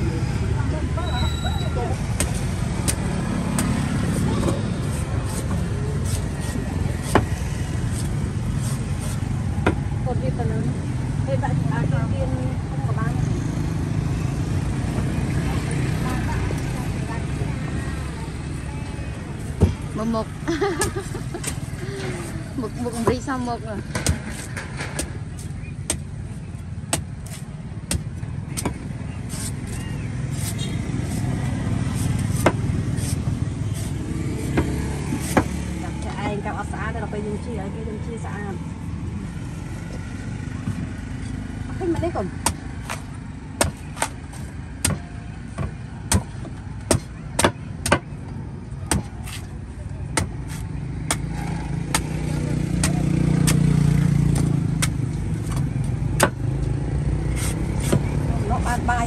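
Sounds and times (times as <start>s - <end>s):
road traffic rumble: 0.0s - 59.0s
vehicle engine humming: 0.0s - 59.0s
cleaver chopping coconut husk: 2.0s - 9.9s, 20.8s - 26.2s, 26.8s - 35.8s, 40.7s - 48.2s, 48.8s - 58.8s.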